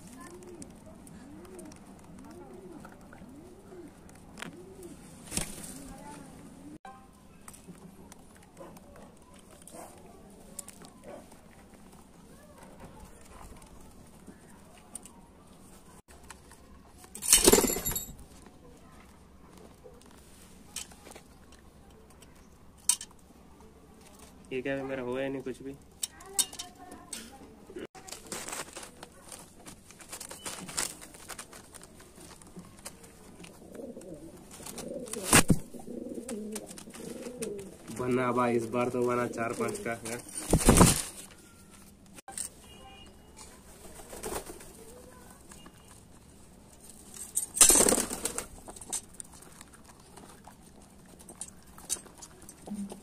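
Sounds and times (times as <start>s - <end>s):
pigeons pecking on concrete: 0.0s - 53.0s
plastic bag crinkling: 28.0s - 33.3s
wings flapping: 39.0s - 41.3s, 43.7s - 45.3s, 47.6s - 49.0s.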